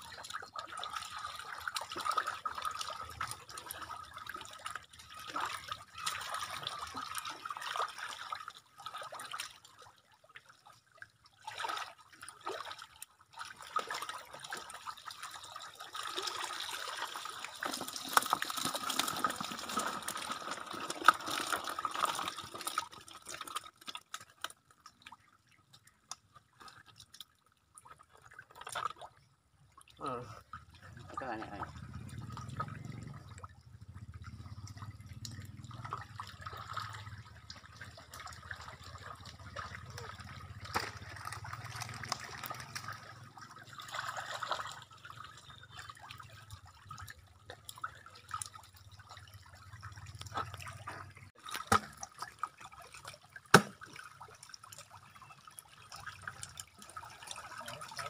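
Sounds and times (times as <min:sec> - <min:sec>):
water splashing and running: 0:00.0 - 0:58.0.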